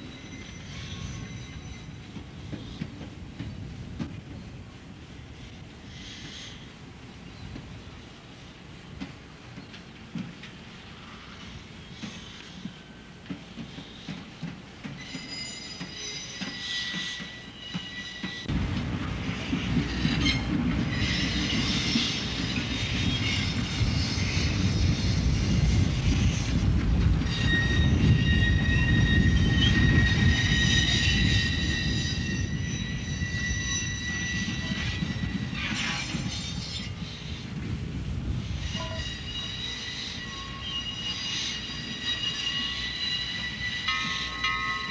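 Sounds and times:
wheels squealing: 0.0 - 2.8, 19.5 - 37.5, 38.4 - 44.9
wheels rumbling on rail: 0.0 - 44.9.

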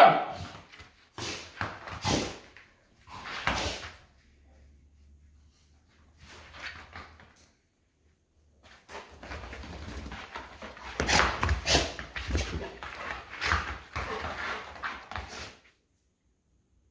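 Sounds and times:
dogs scuffling: 8.6 - 15.7.

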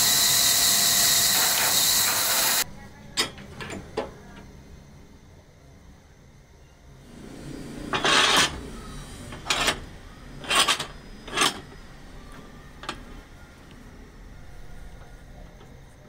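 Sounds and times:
wooden cue scraping through machine: 7.1 - 13.1.

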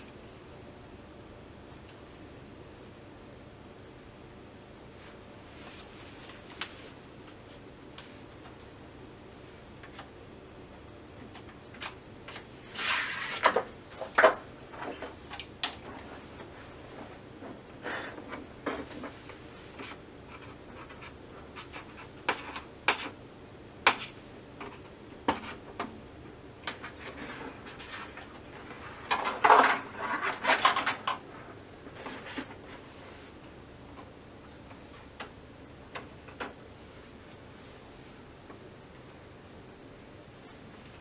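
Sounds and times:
plastic sheets rustling: 5.0 - 8.2, 11.7 - 22.6, 26.7 - 33.4.

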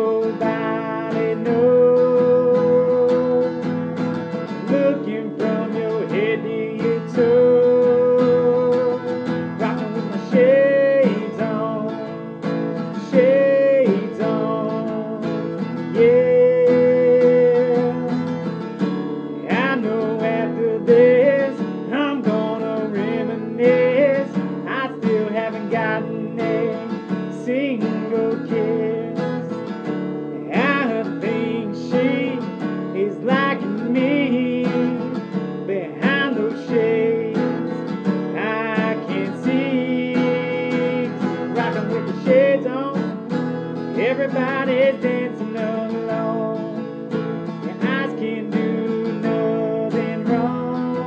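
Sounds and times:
wordless singing: 0.0 - 18.4, 19.3 - 29.7, 30.3 - 43.3, 43.9 - 51.0
acoustic guitar strumming: 0.0 - 51.0.

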